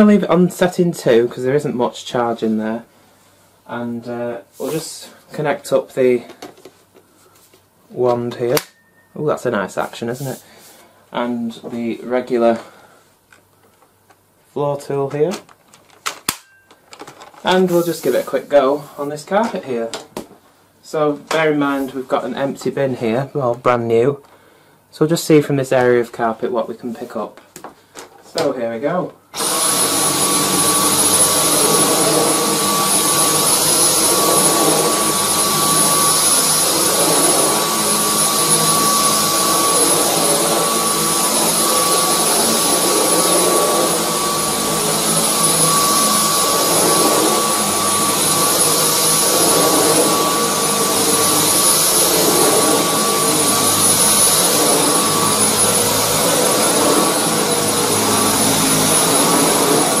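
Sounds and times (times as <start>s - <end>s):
vacuum cleaner on carpet: 29.4s - 60.0s.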